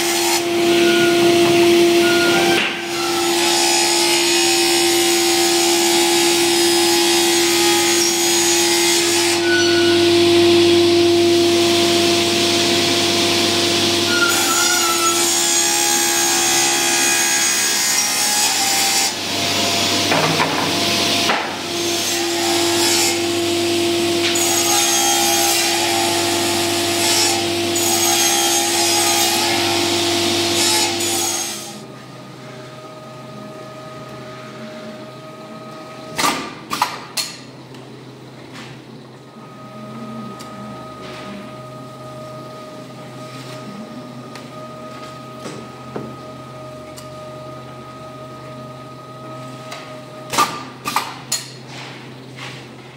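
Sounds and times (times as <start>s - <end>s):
machine hum: 0.0s - 16.0s
panel saw whining: 0.0s - 32.0s.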